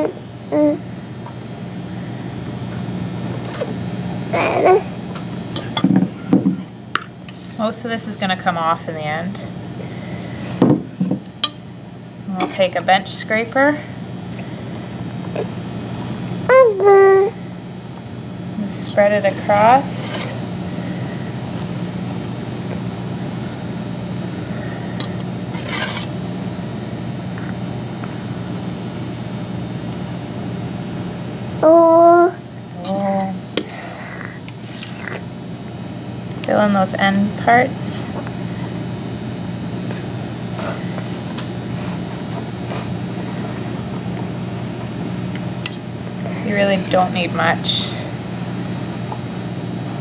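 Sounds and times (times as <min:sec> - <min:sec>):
steady low hum: 0:00.0 - 0:50.0
metal spatula scraping: 0:25.5 - 0:26.1
scraper scraping icing: 0:25.5 - 0:26.1, 0:34.6 - 0:35.2, 0:40.6 - 0:45.2.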